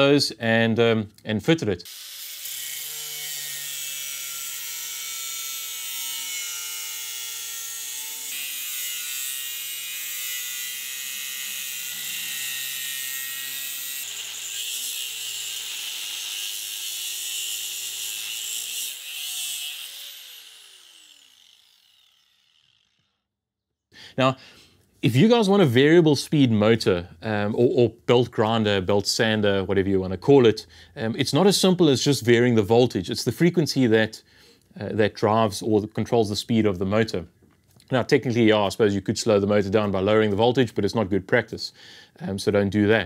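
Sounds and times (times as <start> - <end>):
angle grinder cutting steel: 1.8 - 23.1.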